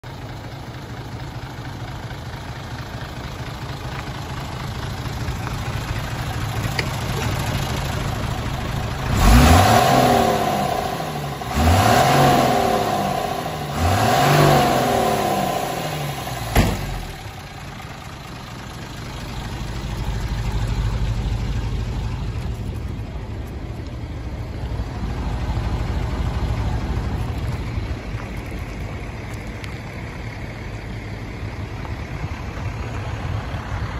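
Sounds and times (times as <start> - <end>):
diesel truck engine idling: 0.0 - 33.9
engine revving: 7.2 - 17.4
sharp knock: 16.5 - 17.0.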